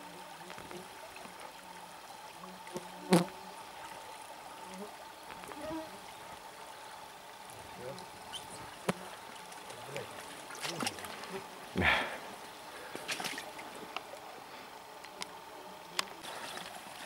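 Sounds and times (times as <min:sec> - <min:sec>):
shallow river water flowing: 0:00.0 - 0:17.0.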